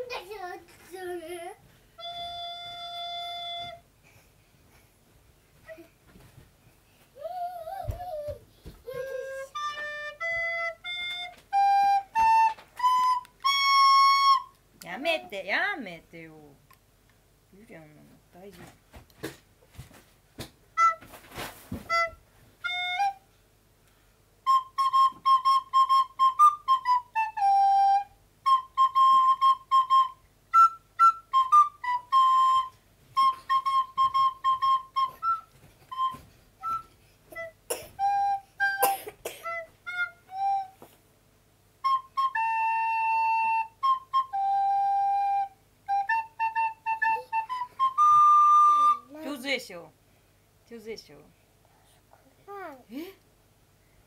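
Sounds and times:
recorder playing a melody: 2.0s - 3.9s, 8.9s - 14.6s, 20.8s - 21.2s, 21.8s - 23.2s, 24.4s - 40.9s, 41.8s - 49.2s.

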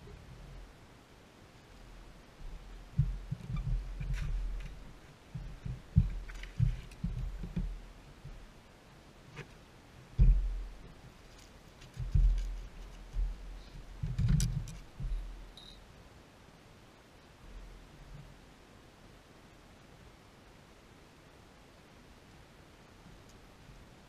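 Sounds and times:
low thumps on boat deck: 2.4s - 8.4s, 10.2s - 10.8s.

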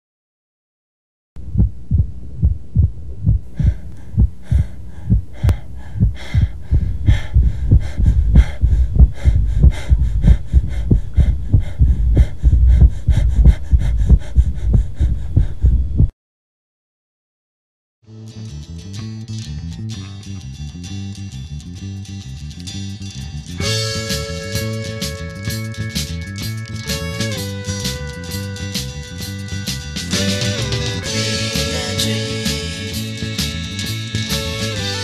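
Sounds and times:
deep throbbing low thumps: 1.4s - 16.1s
low hum: 1.4s - 16.1s.

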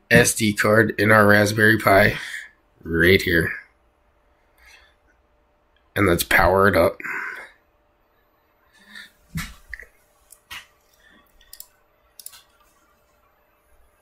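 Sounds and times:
faint clicks: 10.3s - 12.8s.

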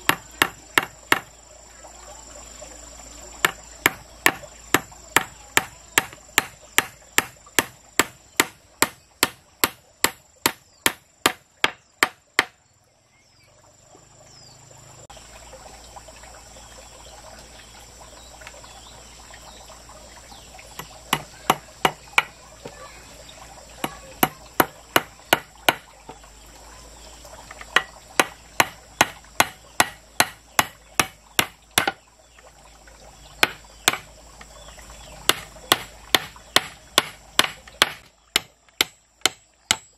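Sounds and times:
hand tool striking wood: 0.0s - 1.3s, 3.4s - 12.6s, 20.8s - 22.8s, 23.8s - 25.9s, 27.6s - 32.0s, 33.4s - 34.1s, 35.3s - 39.9s
high-pitched insect call: 0.0s - 39.9s.

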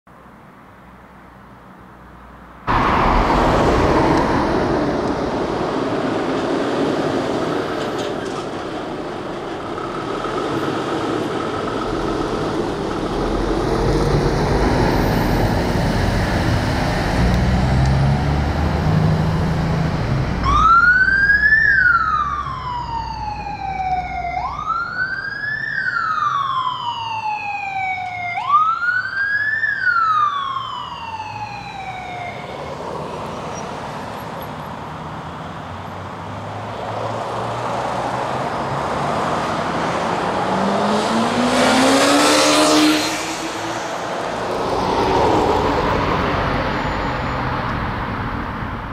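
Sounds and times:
fire engine siren: 2.7s - 16.8s, 17.7s - 33.4s, 40.1s - 47.7s
diesel engine running loudly: 2.7s - 17.4s.

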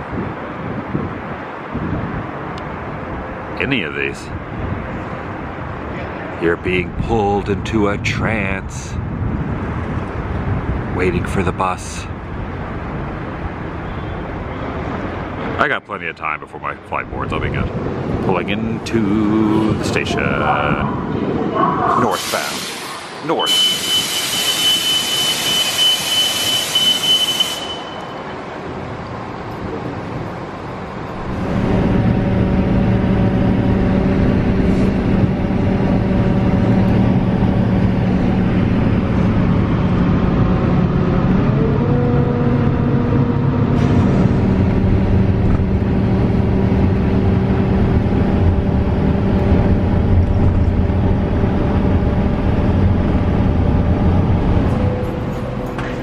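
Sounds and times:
bus engine running: 4.2s - 15.6s, 16.6s - 26.8s, 28.3s - 56.0s
pneumatic door air hiss: 22.2s - 27.9s
steady high beep: 23.3s - 28.3s.

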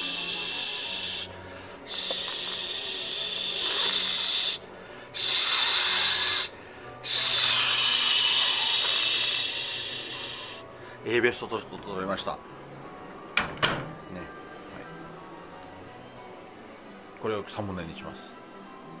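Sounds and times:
loud steady hiss: 0.0s - 10.7s.

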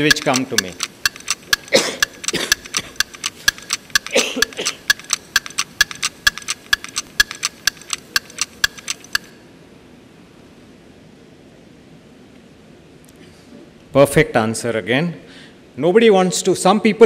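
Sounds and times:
electronic countdown ticking: 0.0s - 9.4s.

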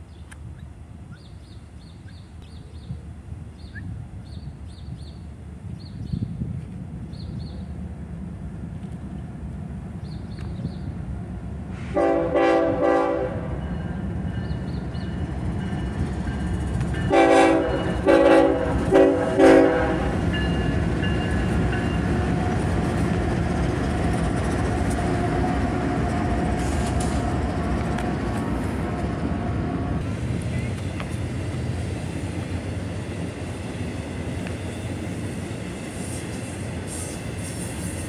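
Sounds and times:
train wheels on rails: 3.7s - 38.0s
diesel engines rumbling: 6.4s - 38.0s
train air horn blasts: 11.8s - 13.7s, 17.1s - 20.2s.

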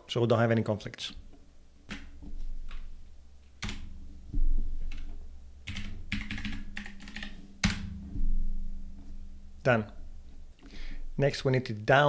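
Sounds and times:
typing on computer keyboard: 5.7s - 7.8s.

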